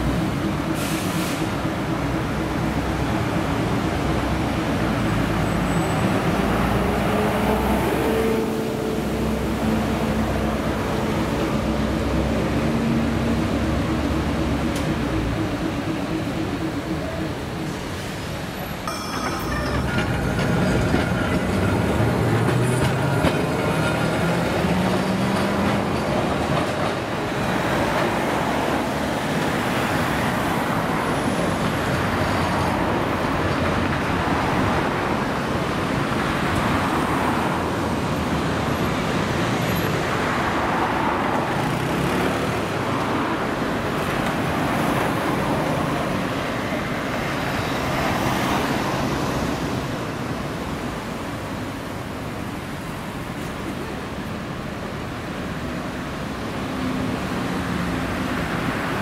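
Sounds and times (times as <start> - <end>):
tram hum rising in pitch: 0.0 - 38.2
road traffic noise: 0.0 - 59.0.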